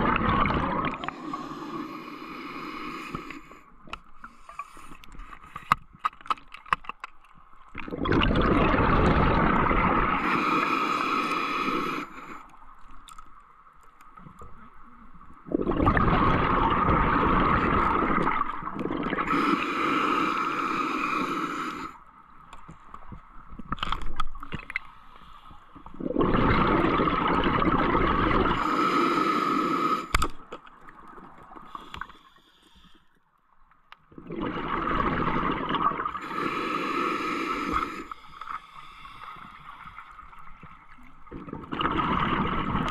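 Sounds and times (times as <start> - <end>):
exhaled bubbles rumbling: 0.0 - 1.8, 7.7 - 12.0, 14.3 - 19.6, 25.8 - 28.7, 34.1 - 38.1, 40.2 - 42.9
regulator breathing hiss: 1.1 - 3.7, 10.2 - 12.5, 19.3 - 22.0, 28.6 - 30.2, 36.2 - 40.1.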